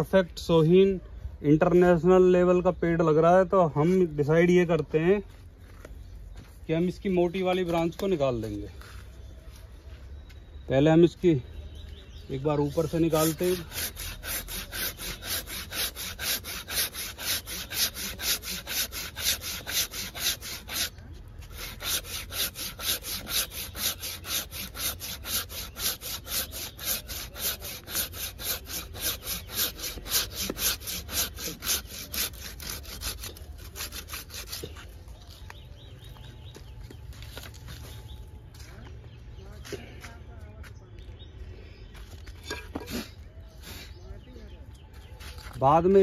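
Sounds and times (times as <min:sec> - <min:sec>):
hand saw cutting branch: 0:12.8 - 0:34.9.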